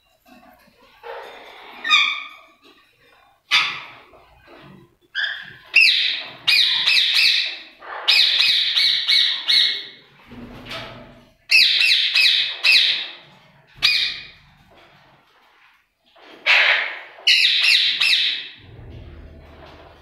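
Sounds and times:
parakeets squawking: 5.2s - 10.0s.

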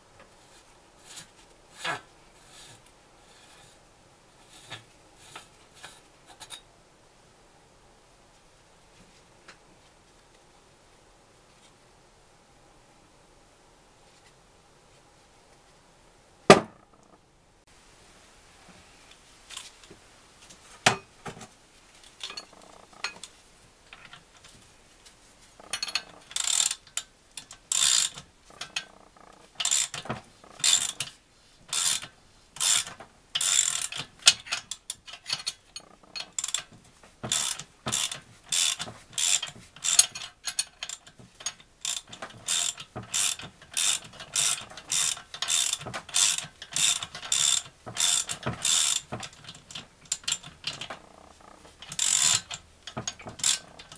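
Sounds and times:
socket wrench ratchet clicking: 25.8s - 26.8s, 29.6s - 30.0s, 31.7s - 34.6s, 41.8s - 49.1s, 51.9s - 52.6s.

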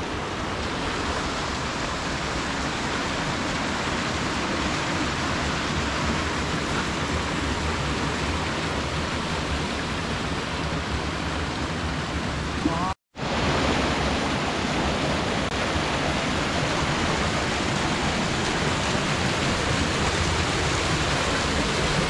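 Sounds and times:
rushing mountain stream: 0.0s - 22.0s.

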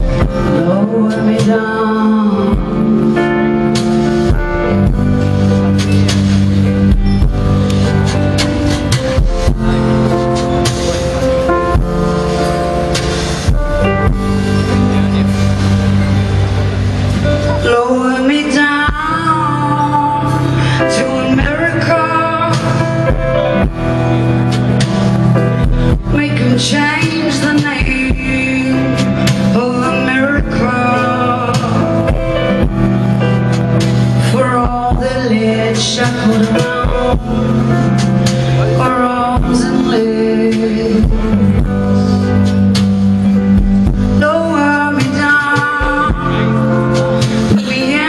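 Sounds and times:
woman singing: 0.0s - 3.8s, 17.5s - 23.1s, 25.9s - 32.7s, 34.2s - 42.5s, 44.0s - 48.0s
guitar and keyboard tones: 0.0s - 48.0s
low bass notes: 0.0s - 48.0s
slow kick-drum beat: 3.7s - 16.6s, 22.6s - 29.6s, 31.6s - 35.3s, 36.0s - 38.6s, 40.6s - 44.2s.

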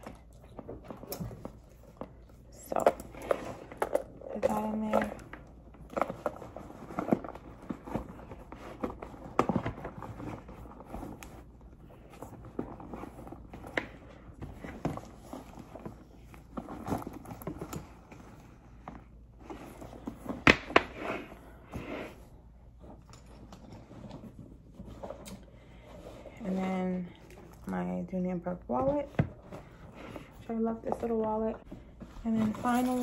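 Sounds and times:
handbag handling rustles and taps: 30.6s - 33.0s.

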